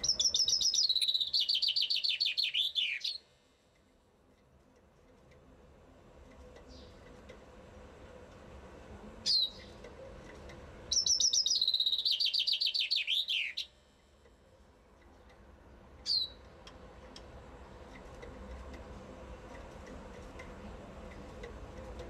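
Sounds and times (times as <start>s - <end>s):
chaffinch song trill: 0.0s - 3.4s, 10.9s - 13.9s.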